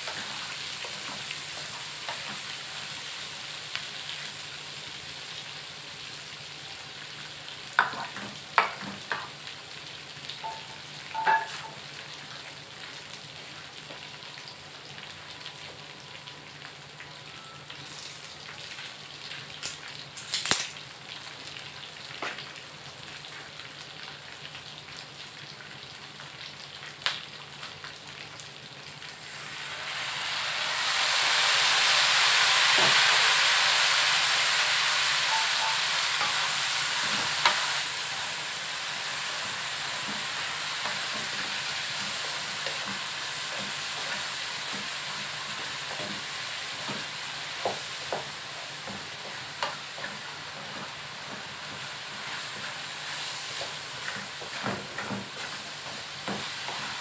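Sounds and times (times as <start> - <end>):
loud frying hiss: 0.0 - 13.6, 28.2 - 57.0
peanuts sizzling in a pan: 0.0 - 57.0.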